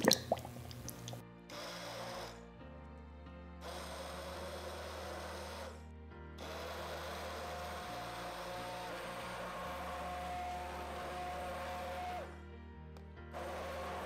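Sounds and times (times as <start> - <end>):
immersion blender whining: 1.5 - 2.5, 3.6 - 12.4, 13.3 - 14.0.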